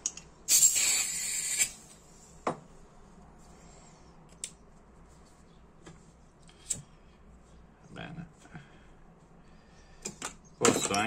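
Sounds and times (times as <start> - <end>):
butane refill hiss: 0.5 - 1.8.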